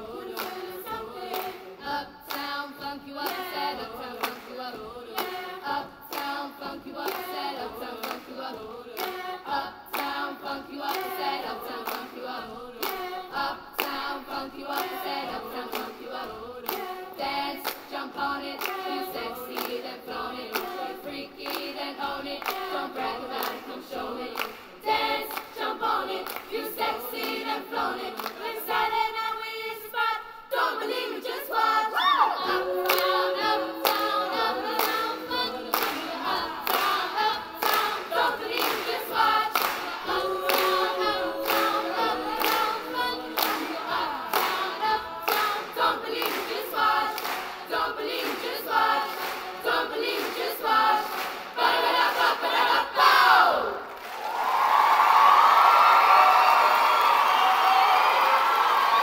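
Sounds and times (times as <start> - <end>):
children's choir singing: 0.0 - 59.0
hand claps: 0.3 - 1.7, 2.3 - 2.6, 3.2 - 5.5, 6.1 - 6.4, 7.0 - 7.4, 8.0 - 10.2, 10.8 - 12.2, 12.8 - 13.2, 13.8 - 14.1, 14.7 - 16.0, 16.6 - 17.0, 18.6 - 19.9, 20.5 - 21.8, 22.4 - 23.7, 24.4 - 25.6, 26.2 - 27.5, 28.2 - 28.5, 32.8 - 52.3.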